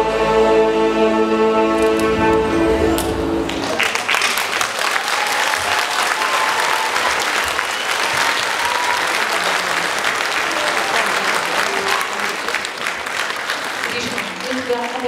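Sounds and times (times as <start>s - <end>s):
held musical note: 0.2s - 3.9s
audience applauding: 1.8s - 15.0s.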